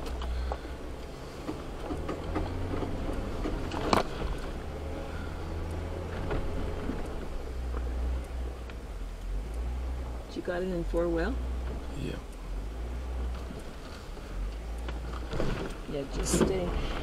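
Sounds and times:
vehicle creaks and knocks: 0.0s - 8.9s, 13.2s - 17.0s
vehicle engine rumbling: 0.0s - 17.0s.

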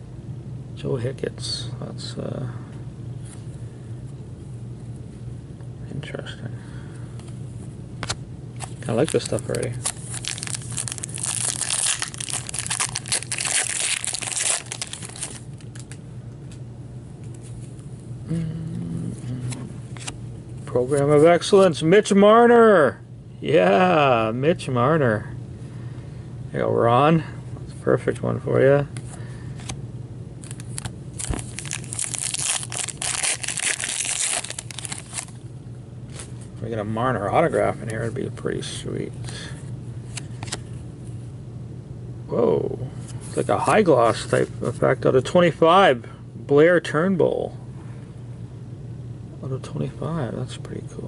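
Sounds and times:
foil wrapper crinkling: 8.8s - 16.0s, 30.4s - 35.4s.

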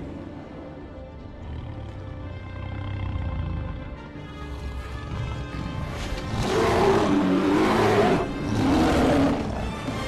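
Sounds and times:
film music: 0.0s - 10.0s
bear roaring: 6.3s - 10.0s.

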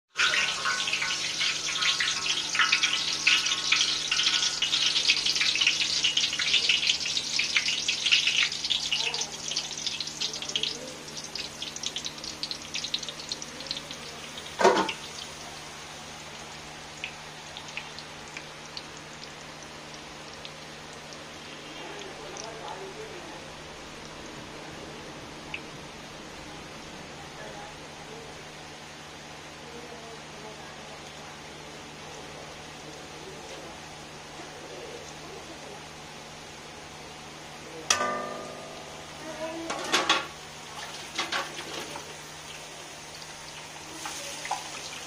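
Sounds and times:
batter sizzling in hot oil: 0.1s - 24.6s, 25.2s - 45.0s.

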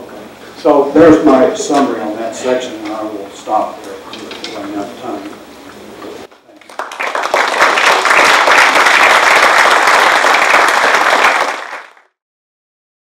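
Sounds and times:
audience applauding: 6.5s - 12.2s.

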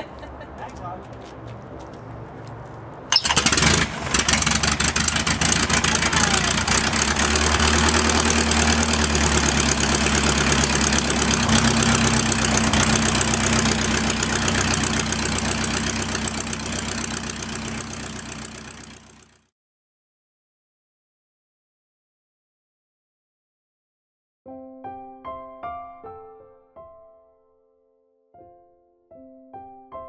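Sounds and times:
aircraft engine idling: 3.1s - 19.3s.

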